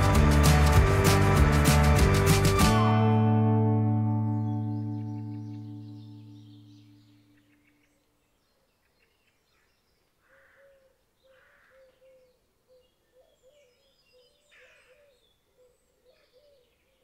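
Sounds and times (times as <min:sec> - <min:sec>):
faint birdsong chirps: 0:03.9 - 0:17.0.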